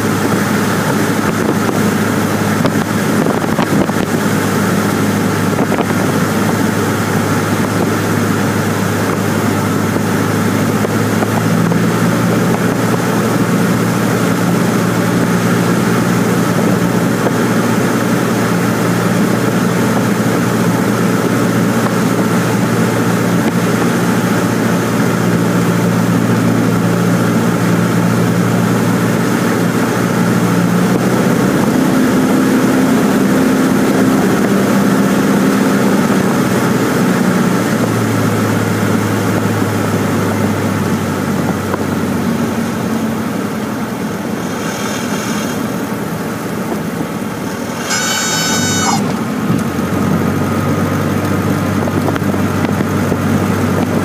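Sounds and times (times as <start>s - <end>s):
wind noise: 0.0s - 28.0s
airplane engine and propeller droning: 0.0s - 54.0s
high tone: 47.5s - 49.4s.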